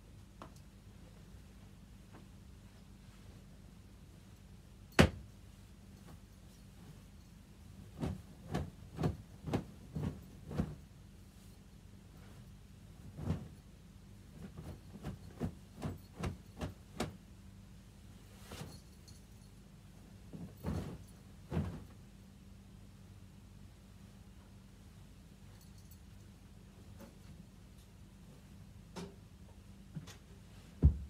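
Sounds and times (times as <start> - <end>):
dull thumps: 30.8 - 31.0.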